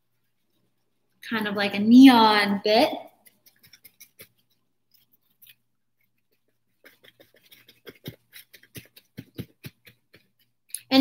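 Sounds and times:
paper napkin dabbing paint: 0.0 - 1.2, 2.3 - 10.7.

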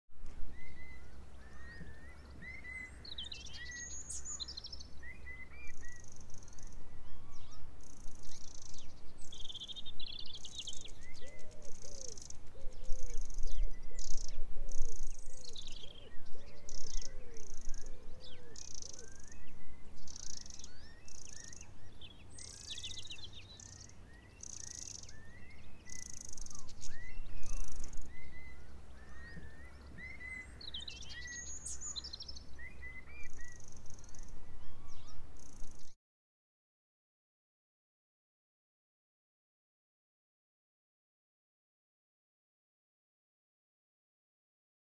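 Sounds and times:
wind rumble on microphone: 0.1 - 23.3, 25.1 - 36.0
small birds chirping: 0.3 - 36.0.

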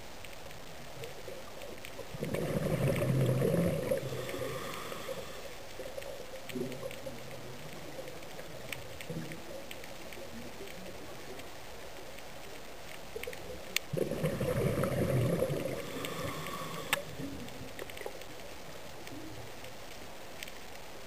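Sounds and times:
water bubbling and gurgling: 0.9 - 11.4, 13.1 - 18.4
underwater hiss: 2.2 - 6.0, 13.9 - 17.5.

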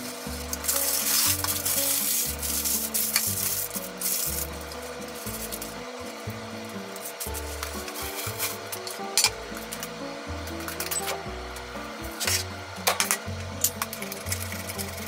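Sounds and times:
paper rustling and crinkling: 0.0 - 5.8.

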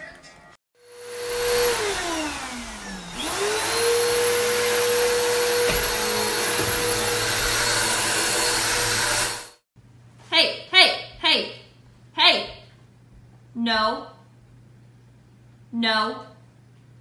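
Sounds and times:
vacuum cleaner motor whine: 0.8 - 9.6.

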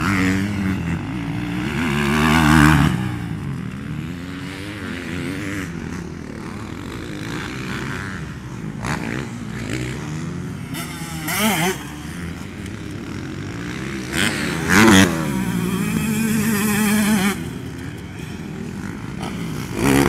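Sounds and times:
motocross bikes revving: 0.0 - 20.0.

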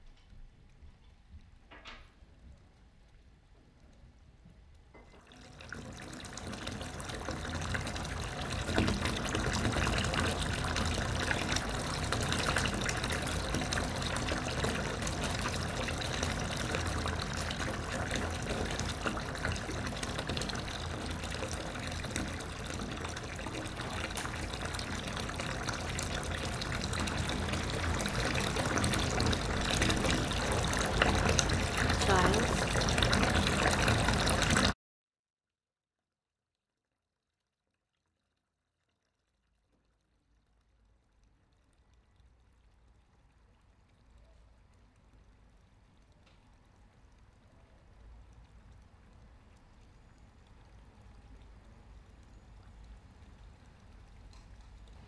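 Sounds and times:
rushing watery noise: 7.8 - 34.8.

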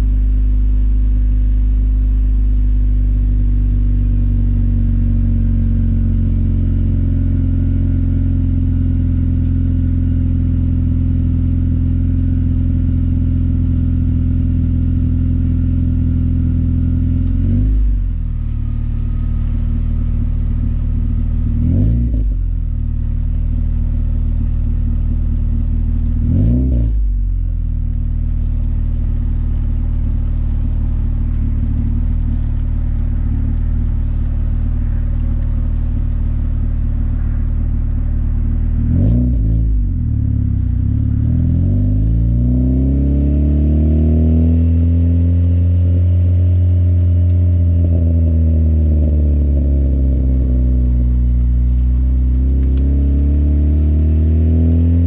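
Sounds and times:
car exhaust drone: 0.0 - 55.0.

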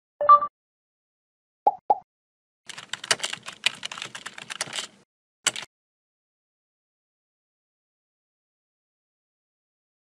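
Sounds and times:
rapid keyboard typing: 2.7 - 5.7.

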